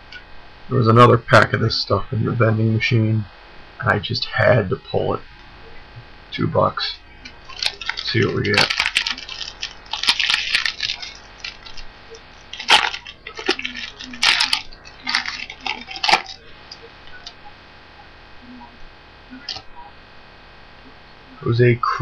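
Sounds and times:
plastic wrapper crinkling and tearing: 7.2s - 17.4s.

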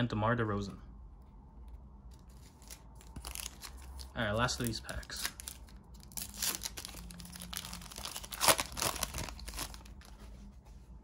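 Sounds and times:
wrapper tearing and crinkling: 2.3s - 10.1s.

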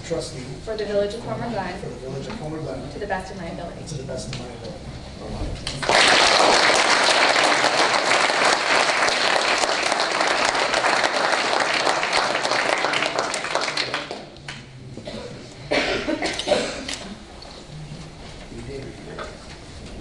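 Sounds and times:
audience applauding: 5.7s - 14.4s.

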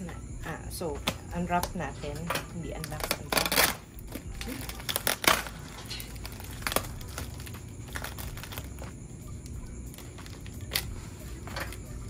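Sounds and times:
bubble wrap crinkling: 2.8s - 9.0s, 9.8s - 11.8s.

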